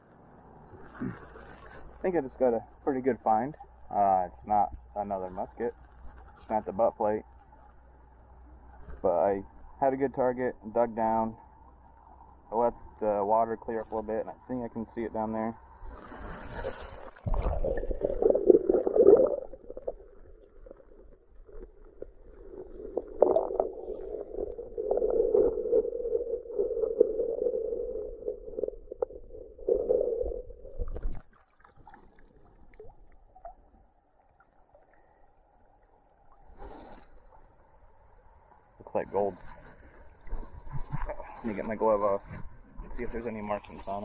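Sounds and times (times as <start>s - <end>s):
muffled underwater water churning: 0.0s - 44.0s.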